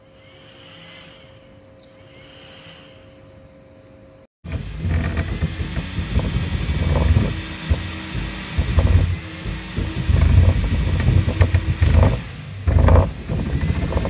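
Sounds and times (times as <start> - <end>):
rough rumbling machine noise: 4.4 - 14.0.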